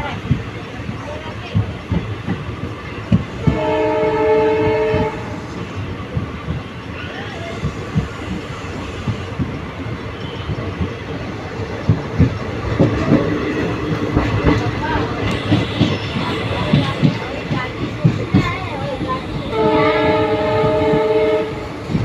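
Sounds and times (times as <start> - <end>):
train rumbling at speed: 0.0 - 22.0
diesel locomotive horn: 3.4 - 5.4, 14.9 - 17.2, 19.3 - 21.8.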